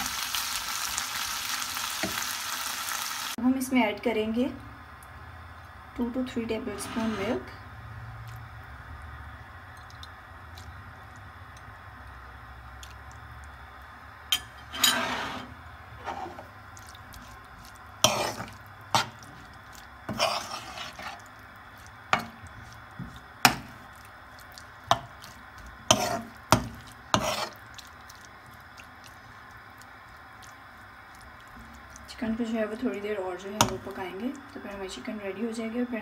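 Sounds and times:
metal spoon scraping frying pan: 6.6s - 7.6s, 14.3s - 16.5s, 18.0s - 19.5s, 20.1s - 21.3s, 22.1s - 23.8s, 24.9s - 27.6s
wet squelches of meat: 16.7s - 32.1s.

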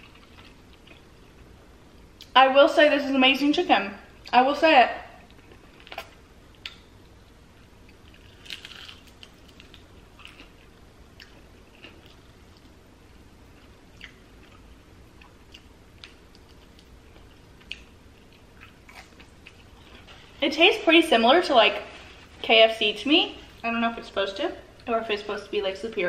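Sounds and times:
person chewing crispy chicken: 7.9s - 12.8s.

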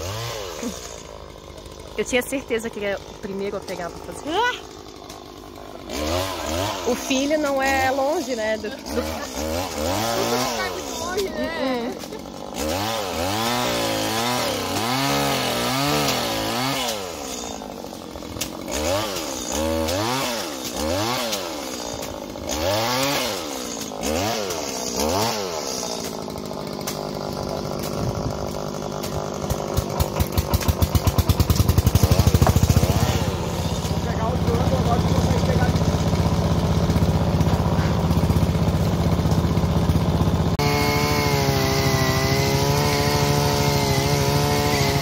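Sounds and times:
pole saw engine revving: 0.0s - 45.0s
engine idling: 26.0s - 40.7s.

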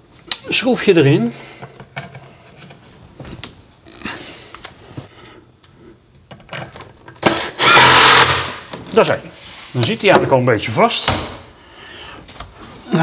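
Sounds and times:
cordless drill driving screw: 7.3s - 8.6s.

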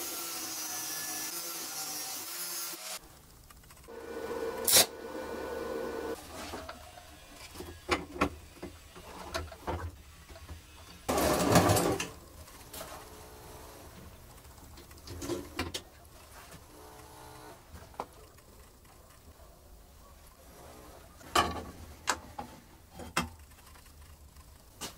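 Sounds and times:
steady hum: 3.9s - 6.2s.

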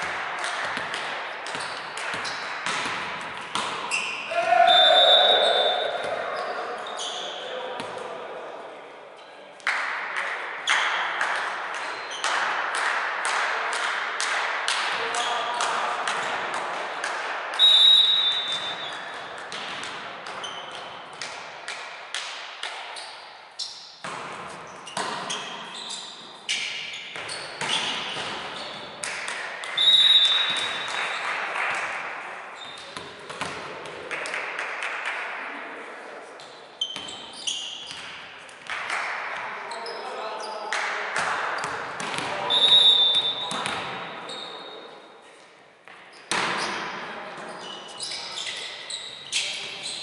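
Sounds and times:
shoe squeaks: 1.5s - 2.5s, 3.8s - 7.5s, 11.8s - 12.3s, 17.6s - 19.1s, 20.4s - 20.9s, 24.6s - 29.0s, 29.8s - 31.2s, 32.6s - 33.0s, 36.4s - 38.0s, 42.4s - 44.8s, 47.4s - 50.0s
players shouting: 4.3s - 6.5s.

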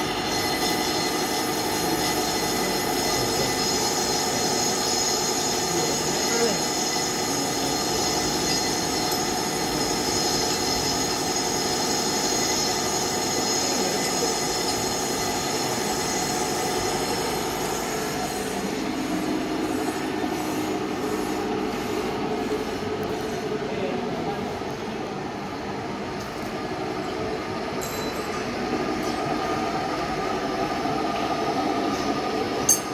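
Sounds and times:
high machining tones: 0.0s - 23.5s
lathe machining metal: 0.0s - 32.9s.

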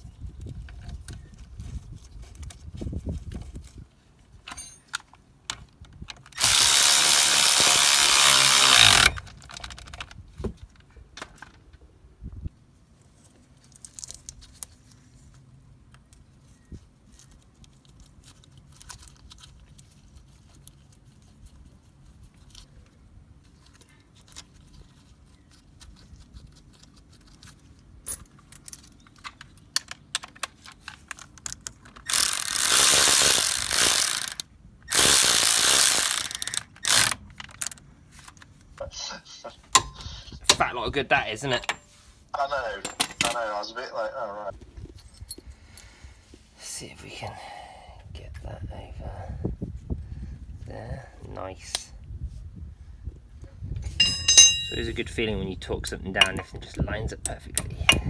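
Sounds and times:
power tool spinning a bolt: 6.4s - 9.2s, 32.1s - 37.2s
tools clicking and knocking: 28.0s - 37.8s, 39.7s - 40.6s, 42.8s - 43.4s, 53.9s - 54.8s, 55.8s - 56.8s.

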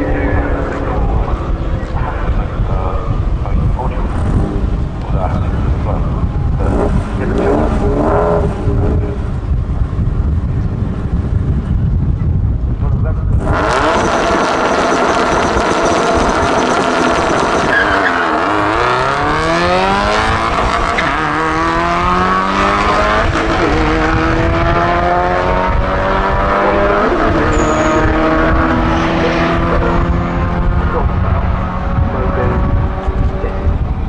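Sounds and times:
race car engine revving: 0.0s - 10.0s, 13.3s - 34.0s.

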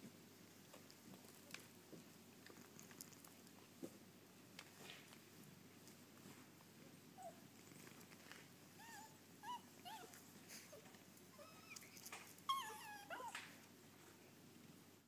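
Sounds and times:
dog whimpering: 8.8s - 13.5s.

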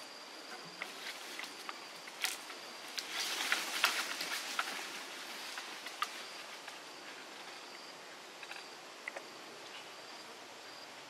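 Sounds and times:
high insect buzz: 0.0s - 11.0s
crackling rustling patter: 0.8s - 7.8s.

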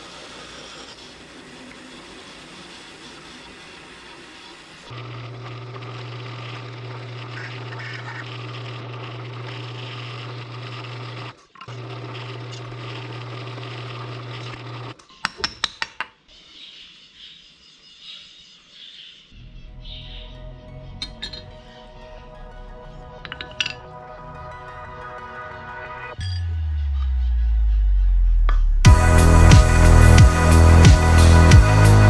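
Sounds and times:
drill press motor running: 0.0s - 15.0s.

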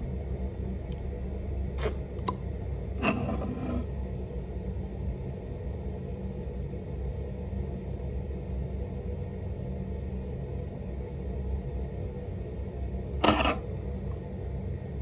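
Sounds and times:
low background rumble: 0.0s - 15.0s
tube cap clicks: 1.8s - 2.4s.

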